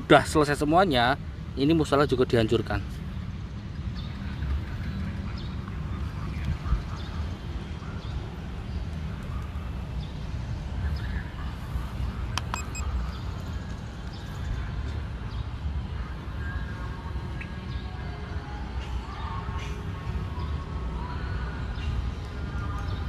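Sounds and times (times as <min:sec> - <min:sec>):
sharp click: 0:12.3 - 0:12.8.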